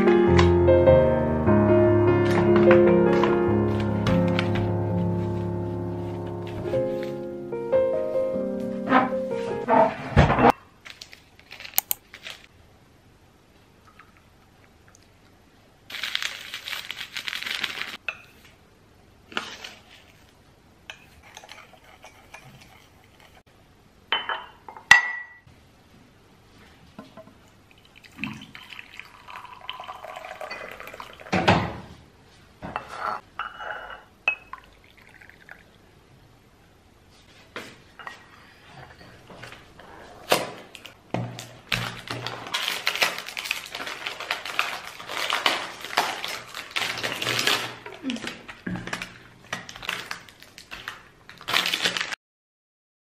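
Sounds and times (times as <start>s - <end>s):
running liquid: 27.7s - 31.4s
dishes and cutlery clinking: 32.7s - 34.5s.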